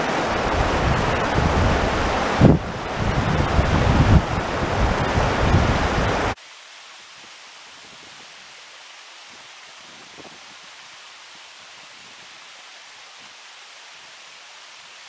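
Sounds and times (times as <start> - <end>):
river rushing over stones: 0.0 - 15.0
wind buffeting microphone: 0.1 - 6.4.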